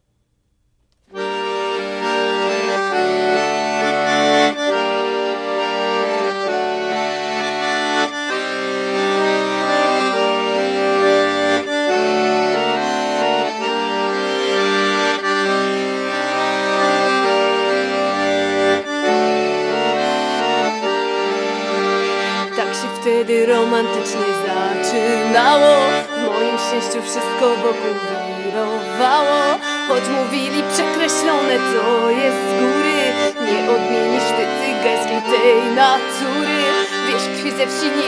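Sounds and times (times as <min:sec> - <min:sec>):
piano accordion playing: 0:01.1 - 0:38.0.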